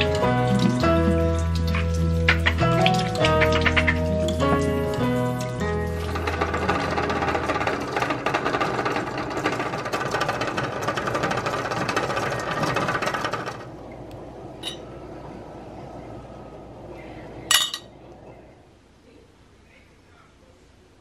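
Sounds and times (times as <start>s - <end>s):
water boiling in a pot: 0.0s - 18.9s
clink of glass and metal: 14.6s - 14.8s, 17.5s - 17.9s.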